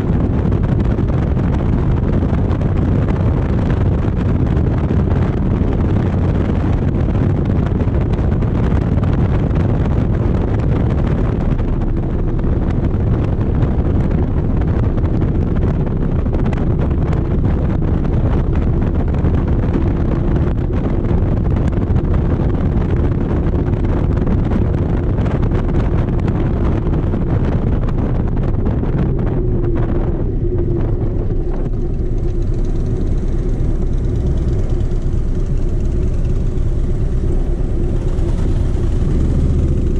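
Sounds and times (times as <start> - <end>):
motorcycle engine riding: 0.0 - 39.9
wind on microphone: 0.0 - 39.9.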